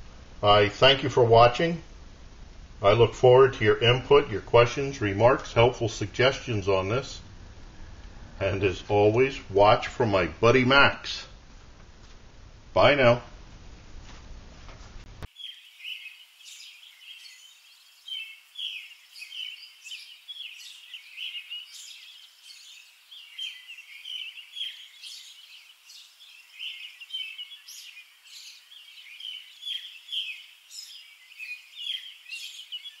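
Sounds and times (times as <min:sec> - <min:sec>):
birds chirping: 0:02.8 - 0:11.0, 0:15.3 - 0:33.0.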